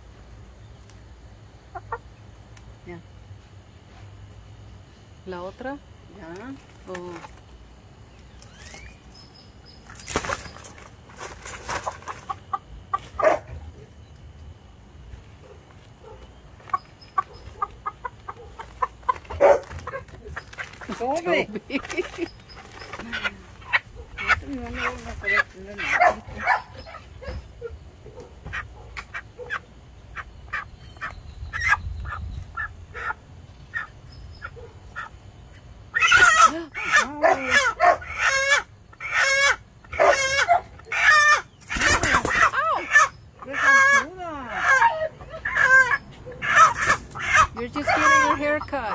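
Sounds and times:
hen clucking and squawking: 0:01.6 - 0:02.2, 0:11.6 - 0:13.6, 0:16.0 - 0:48.9
noisy scuffle: 0:18.4 - 0:23.7.

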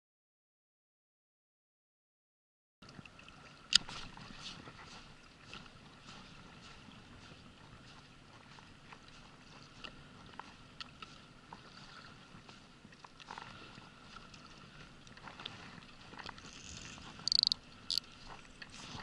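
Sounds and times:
water and wind wash: 0:02.8 - 0:19.0
fishing reel ticking: 0:17.2 - 0:18.1.

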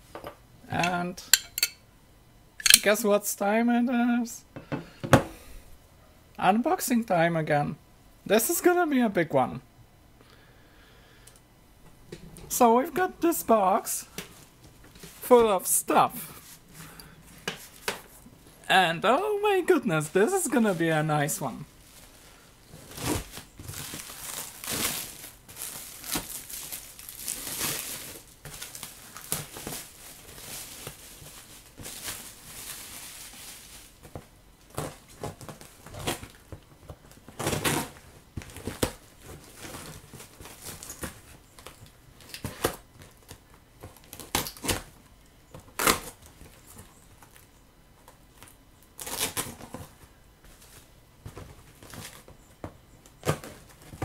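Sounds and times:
plastic wrapping crinkling and tearing: 0:20.0 - 0:45.0, 0:45.6 - 0:50.0, 0:50.6 - 0:52.3.

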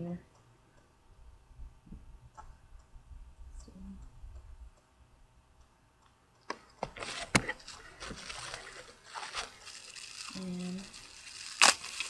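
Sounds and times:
packaging rustling: 0:06.8 - 0:12.0.

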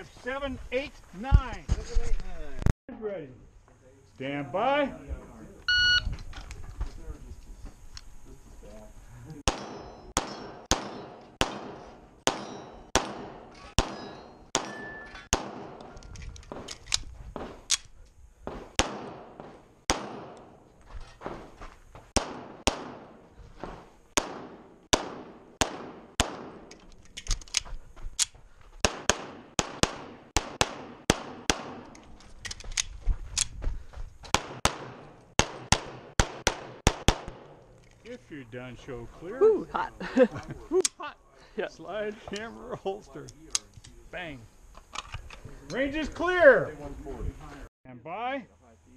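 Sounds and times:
pistol shots with ringing echo: 0:09.5 - 0:16.6, 0:18.5 - 0:20.6, 0:22.2 - 0:23.2, 0:24.2 - 0:26.7, 0:28.8 - 0:32.0, 0:34.3 - 0:37.6.

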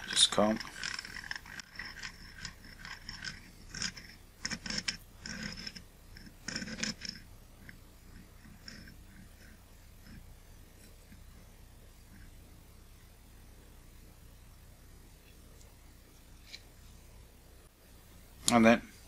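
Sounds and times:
squeaky scratchy rubbing on glass: 0:00.0 - 0:11.3.

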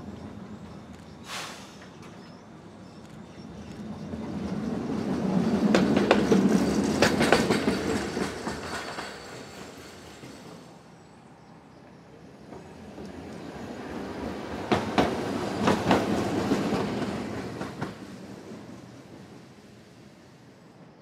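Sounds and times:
streetcar rumbling past: 0:00.0 - 0:21.0.

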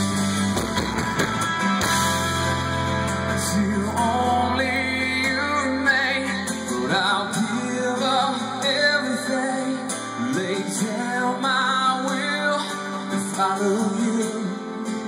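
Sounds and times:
drums: 0:00.0 - 0:09.3
bass guitar: 0:00.0 - 0:11.5
electric guitar: 0:00.0 - 0:15.0
pitch-bending lead guitar line: 0:00.0 - 0:15.0
strummed acoustic guitar: 0:00.0 - 0:15.0.

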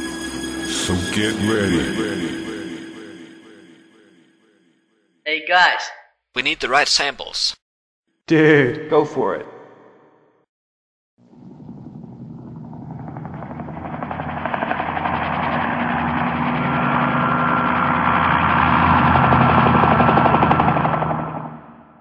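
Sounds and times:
pulsing mechanical rumble: 0:11.2 - 0:21.9.

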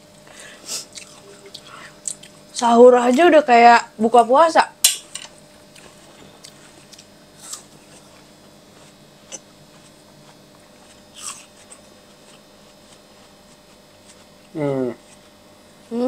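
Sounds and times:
chewing juicy watermelon: 0:00.8 - 0:02.6, 0:05.7 - 0:15.4.

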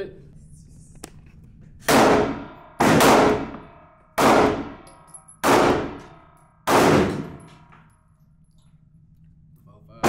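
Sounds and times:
pistol shots echoing indoors: 0:01.8 - 0:08.1.

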